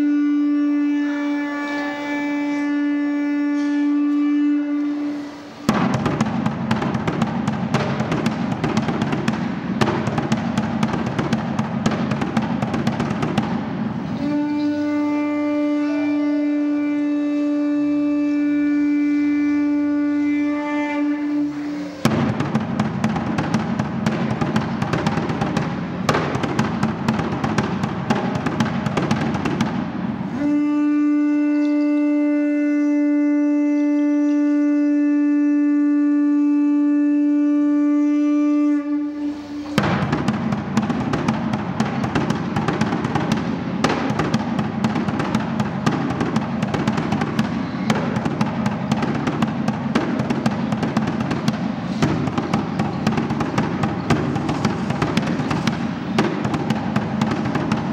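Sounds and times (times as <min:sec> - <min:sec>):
conch shell trumpet note: 0:00.0 - 0:57.9
fast drumming: 0:05.7 - 0:14.5, 0:22.0 - 0:30.6, 0:39.8 - 0:57.9.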